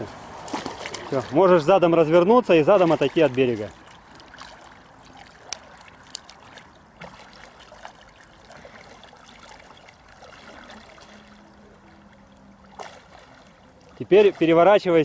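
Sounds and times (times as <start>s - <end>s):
small sharp splashes: 0.0s - 1.7s, 2.4s - 15.0s
water sloshing and splashing: 0.0s - 15.0s.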